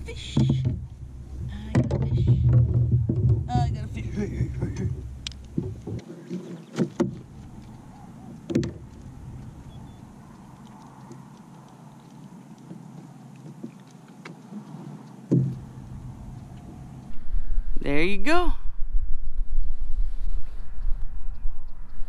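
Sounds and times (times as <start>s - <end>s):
quiet rustling: 0.0s - 17.2s
knocks and bumps on kayak: 0.2s - 7.5s, 8.3s - 9.0s, 15.3s - 15.6s
faint ticks: 8.8s - 15.3s.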